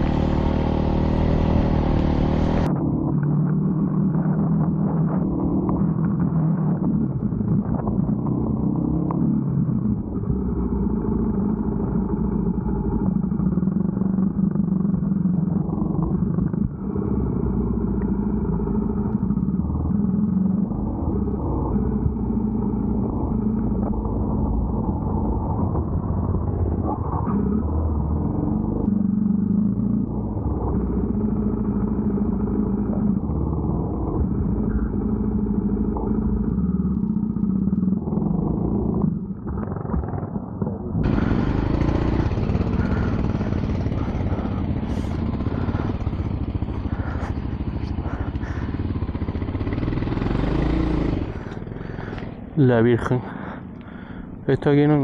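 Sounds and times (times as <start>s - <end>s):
motorcycle engine under load: 0.0s - 2.7s, 41.0s - 55.0s.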